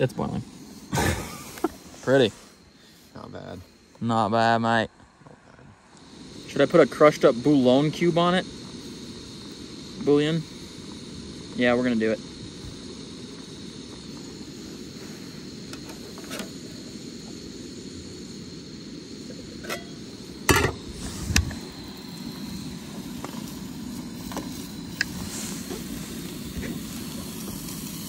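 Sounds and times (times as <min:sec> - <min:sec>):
steady low rumble: 0:04.8 - 0:15.8, 0:16.7 - 0:28.0
metal pots clanking: 0:19.6 - 0:20.8.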